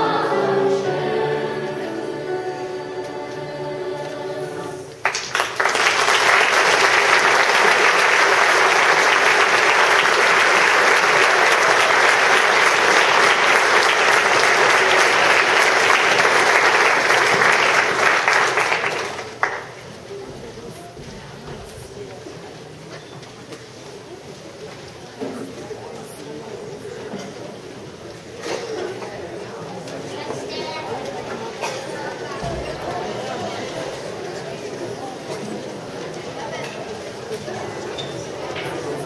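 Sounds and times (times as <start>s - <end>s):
choir holding final chord: 0.0s - 5.0s
audience applause: 5.0s - 19.8s.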